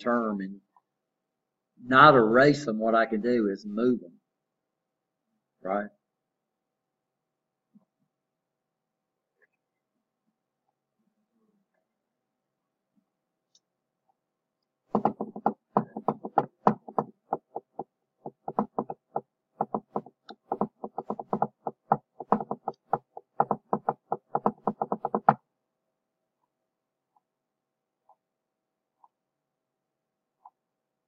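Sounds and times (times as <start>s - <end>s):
rapid sharp clicks and taps: 14.9s - 25.4s.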